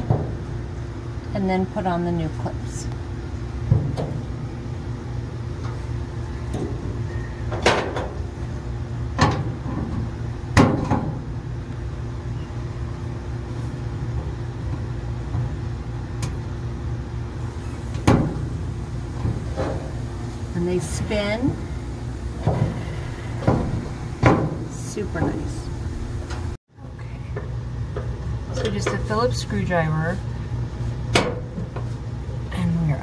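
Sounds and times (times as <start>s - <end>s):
steady low hum: 0.0s - 33.0s
sharp clicks and knocks: 9.2s - 11.2s.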